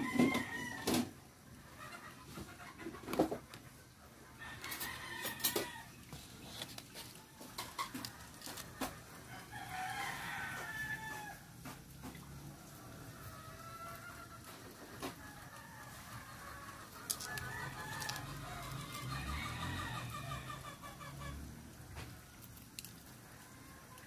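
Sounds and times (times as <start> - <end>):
rooster crowing: 0.0 - 1.1, 4.4 - 6.0, 7.8 - 11.6, 12.5 - 21.3
chickens calling: 0.0 - 24.0.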